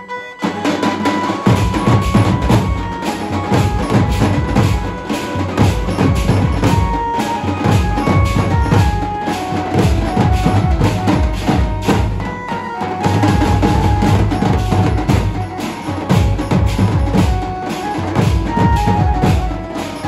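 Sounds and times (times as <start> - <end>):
melody of short held notes: 0.0 - 20.0
bass drums beating fast: 1.5 - 5.0, 5.6 - 9.1, 9.8 - 12.3, 13.1 - 17.6.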